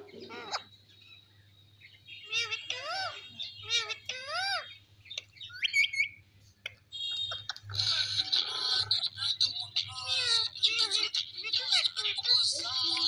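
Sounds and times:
parakeets calling: 0.0 - 13.0.

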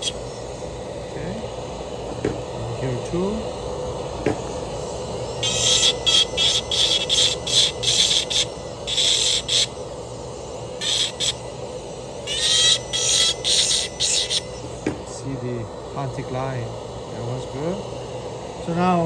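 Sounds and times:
steady low hum: 0.0 - 19.0
dental handpiece grinding metal: 5.2 - 9.9, 10.8 - 11.5, 12.2 - 14.7.

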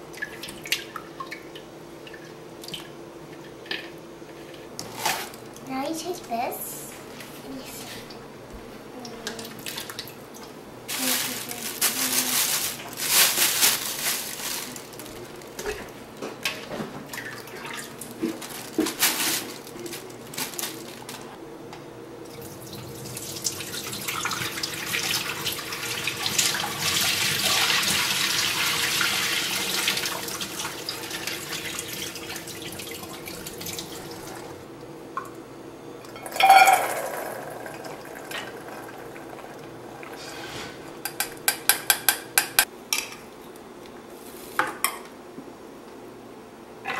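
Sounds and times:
water splashing in a sink: 0.1 - 2.9, 9.3 - 10.2, 17.1 - 19.4, 22.3 - 34.6
dishes clinking: 36.0 - 38.6
dishes clicking and knocking: 41.0 - 43.2.

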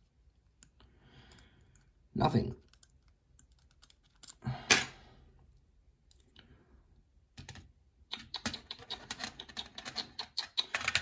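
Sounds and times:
lock parts clicking and tapping: 2.6 - 4.4, 7.4 - 11.0.

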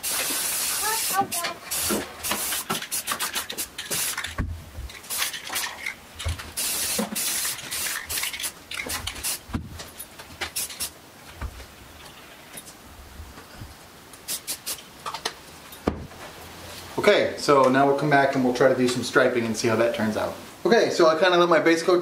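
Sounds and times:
spray paint can hissing: 0.0 - 9.6, 10.4 - 11.0, 14.2 - 14.8.

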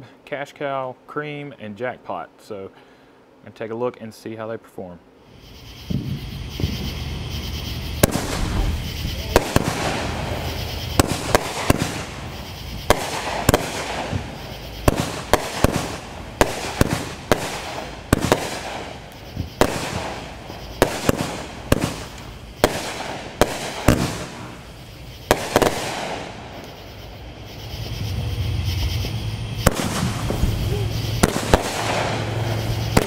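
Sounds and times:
firework bursts overhead: 5.2 - 33.0
firework hissing: 5.2 - 33.0
firework launch thumps: 5.9 - 7.0, 8.0 - 20.2, 20.8 - 24.5, 29.6 - 33.0.

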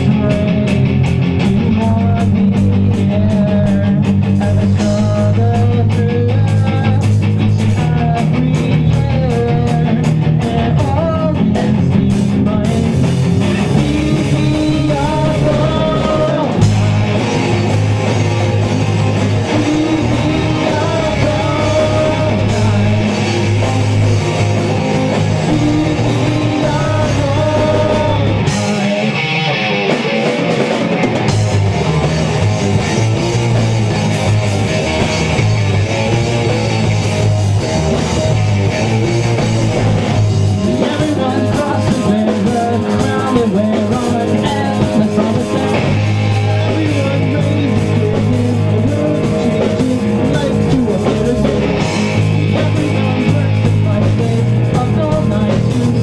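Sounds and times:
person singing: 0.0 - 17.7, 19.3 - 30.7, 40.5 - 56.0
pop-punk band playing: 0.0 - 56.0.

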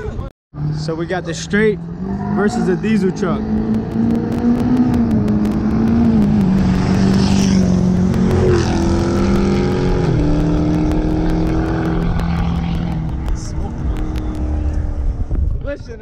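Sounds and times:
road and wind noise rush: 0.0 - 16.0
engines racing at full throttle: 0.6 - 15.6.

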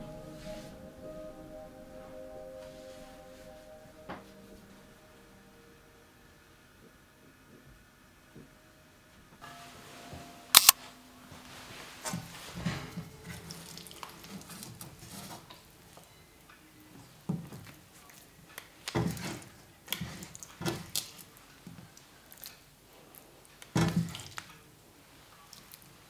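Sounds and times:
sharp clicks: 10.5 - 10.8
noodles shuffling wetly: 13.3 - 15.4.

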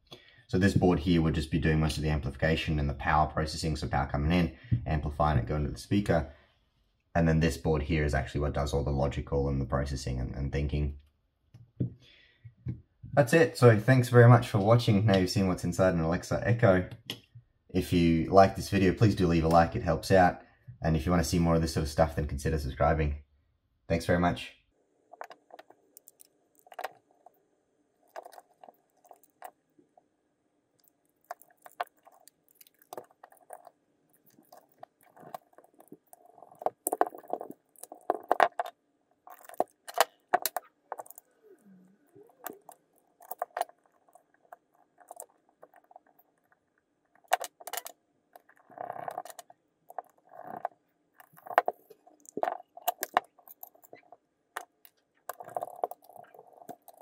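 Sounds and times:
plastic parts clicking and tapping: 30.8 - 41.3, 42.3 - 46.3, 47.2 - 57.0.

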